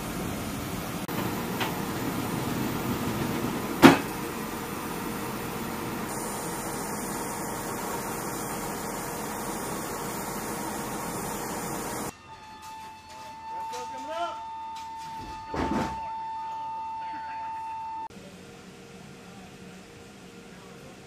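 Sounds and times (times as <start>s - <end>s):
loading machinery hum: 0.0s - 12.1s.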